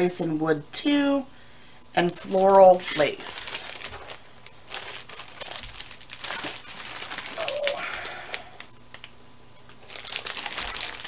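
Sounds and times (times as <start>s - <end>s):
paper kit clicking and rustling: 2.8s - 8.2s.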